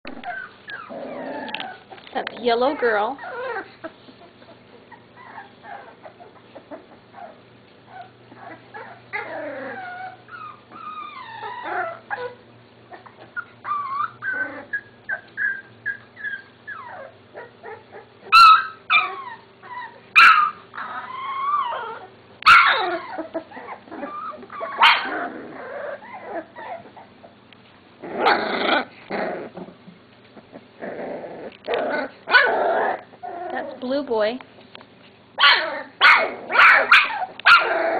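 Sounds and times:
puppy yelps: 0:00.1 - 0:01.8, 0:03.1 - 0:03.8, 0:04.4 - 0:27.1, 0:31.8 - 0:33.7, 0:35.4 - 0:37.9
puppies whining and yipping: 0:00.1 - 0:27.4, 0:30.4 - 0:34.2, 0:35.4 - 0:37.9.

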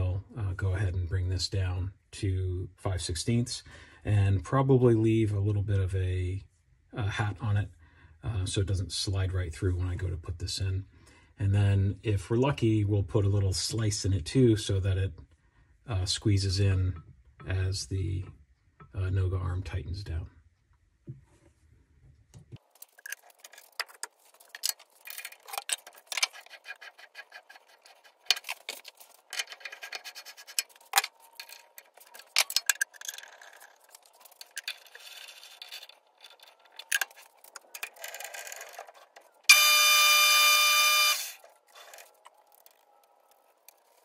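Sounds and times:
tools clicking and tapping: 0:22.8 - 0:39.6
electronic tone: 0:39.5 - 0:41.4.

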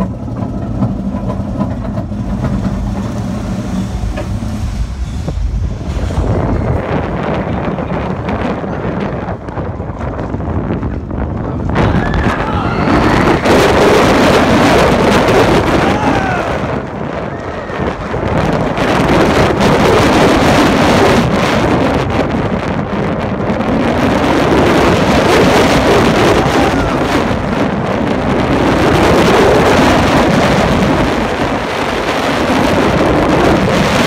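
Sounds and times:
roller coaster train on track: 0:00.0 - 0:34.0
wind blasting microphone: 0:00.0 - 0:34.0.

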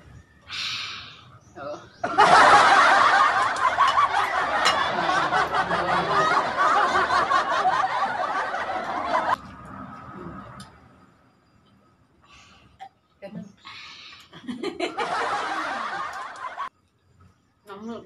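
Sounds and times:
loud laughter: 0:02.0 - 0:09.4, 0:14.4 - 0:16.7.

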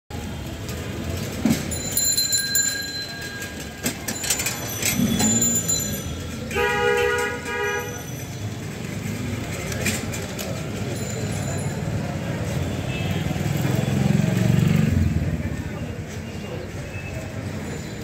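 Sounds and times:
clicks and clatter: 0:00.4 - 0:06.3, 0:08.8 - 0:11.4.

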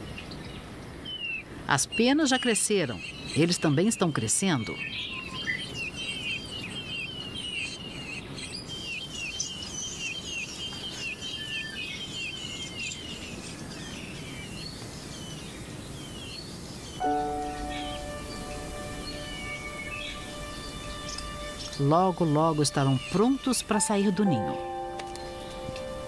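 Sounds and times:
steady outdoor hiss: 0:12.0 - 0:26.0.

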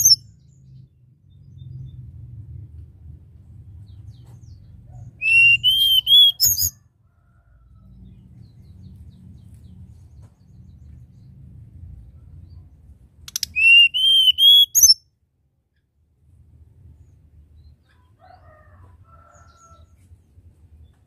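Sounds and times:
bird whistling song: 0:00.0 - 0:00.2, 0:05.2 - 0:06.8, 0:13.3 - 0:15.0
faint low rumble: 0:00.0 - 0:05.2, 0:06.4 - 0:13.6, 0:15.2 - 0:18.2.

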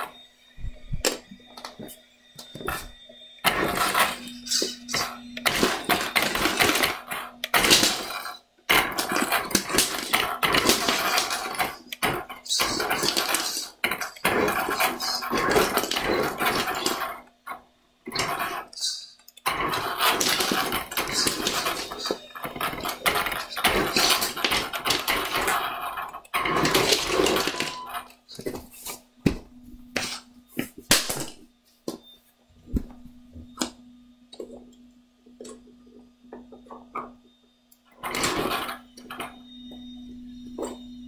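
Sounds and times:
plastic bricks clattering: 0:03.5 - 0:17.2, 0:18.1 - 0:28.6, 0:38.0 - 0:39.3
toy truck motor whirring: 0:18.1 - 0:27.3.

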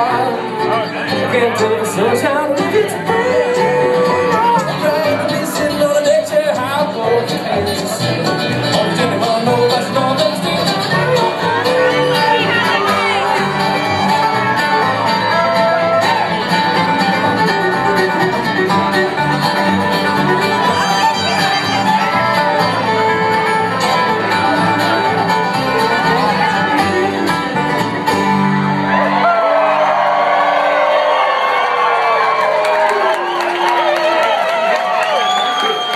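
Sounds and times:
banjo: 0:00.0 - 0:29.2
fiddle: 0:00.0 - 0:29.2
upright bass: 0:00.0 - 0:29.2
dobro: 0:00.0 - 0:29.8
guitar: 0:00.0 - 0:35.9.

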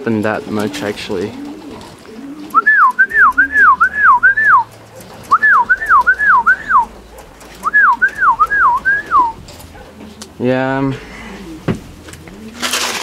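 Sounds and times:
person whistling: 0:02.5 - 0:04.7, 0:05.3 - 0:06.9, 0:07.6 - 0:09.4.

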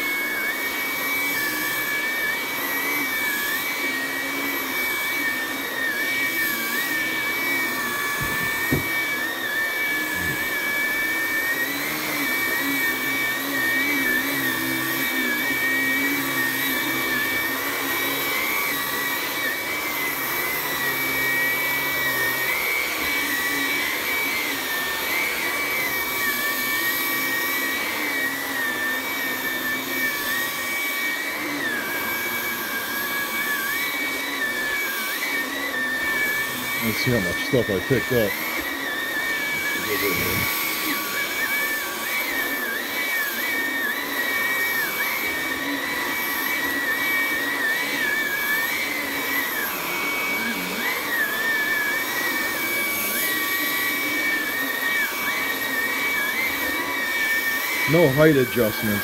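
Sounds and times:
vacuum cleaner motor whine: 0:00.0 - 0:59.0
brief knock: 0:08.2 - 0:08.9.

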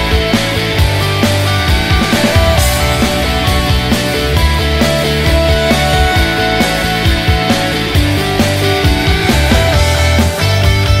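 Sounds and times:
rock music with strong bass: 0:00.0 - 0:11.0.

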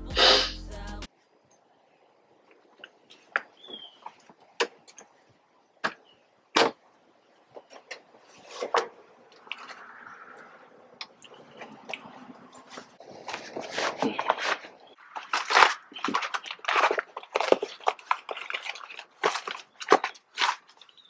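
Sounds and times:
paper envelope rustling: 0:12.7 - 0:21.0.

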